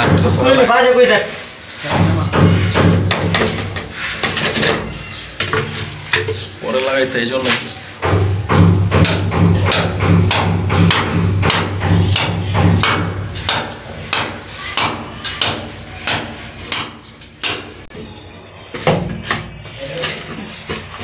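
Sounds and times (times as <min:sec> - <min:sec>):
hammer striking: 0:00.0 - 0:00.6, 0:01.8 - 0:05.7, 0:08.0 - 0:17.9.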